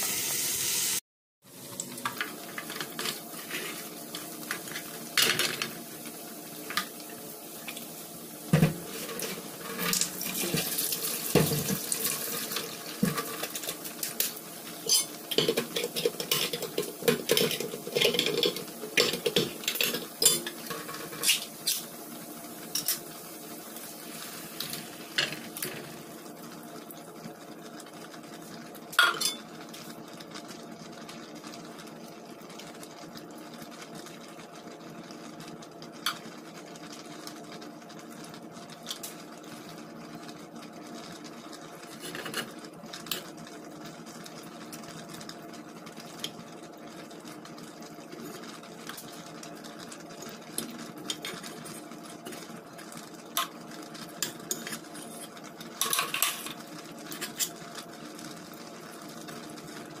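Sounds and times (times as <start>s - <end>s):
metal utensil stirring in a pot: 12.4s - 21.9s.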